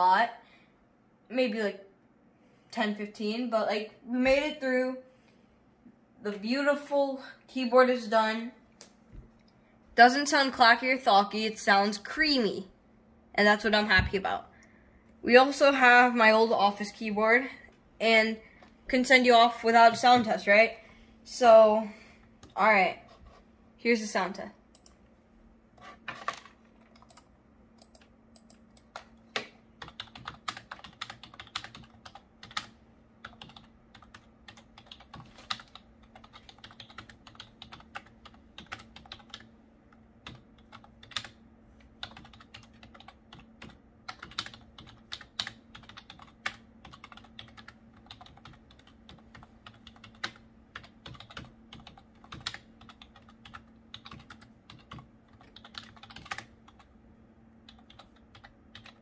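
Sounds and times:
faint low hum: 0.0s - 59.0s
keyboard typing clicks: 24.7s - 25.0s, 26.9s - 39.5s, 40.2s - 41.4s, 42.0s - 56.9s, 57.7s - 59.0s.

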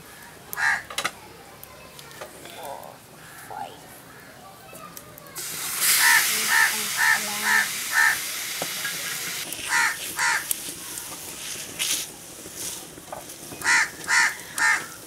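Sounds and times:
crow cawing: 0.1s - 0.9s, 6.0s - 8.2s, 9.7s - 10.5s, 13.6s - 15.0s
chicken sizzling on a griddle: 4.1s - 15.0s.

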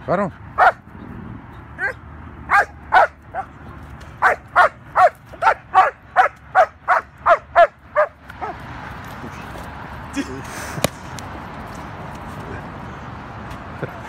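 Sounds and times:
dog barking: 0.6s - 0.8s, 1.8s - 3.5s, 4.2s - 8.6s.

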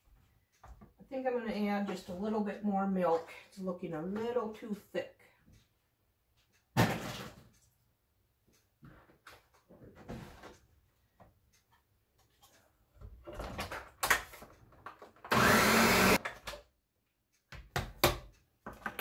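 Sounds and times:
blender motor: 15.3s - 16.2s.

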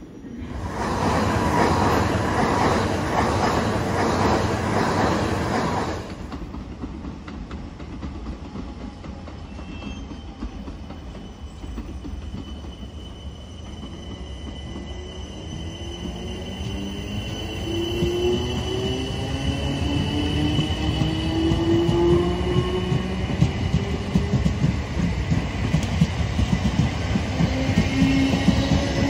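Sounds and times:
train passing: 0.0s - 29.0s
high wheel squeal: 9.4s - 21.5s.

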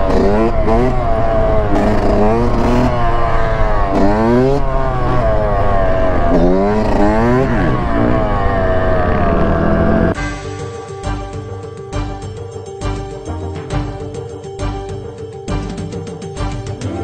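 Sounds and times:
dirt bike engine revving: 0.0s - 10.2s.

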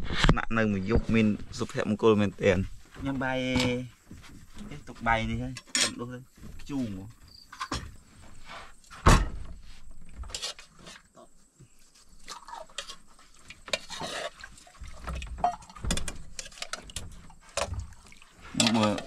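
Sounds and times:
heavy thump: 9.0s - 9.6s
dishes and utensils clinking: 15.4s - 17.0s, 18.5s - 19.0s.

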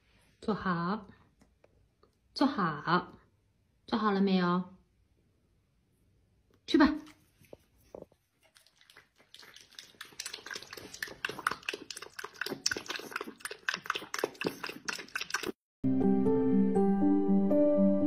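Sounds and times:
puppy eating clicking mouth sounds: 8.5s - 15.6s
soft music with sustained notes: 15.9s - 18.0s.

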